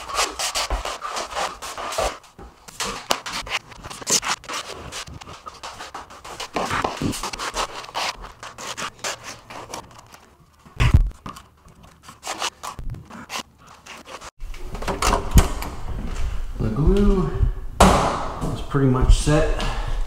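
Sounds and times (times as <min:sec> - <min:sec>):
trowel scraping adhesive: 0:02.8 - 0:10.0, 0:11.8 - 0:14.3.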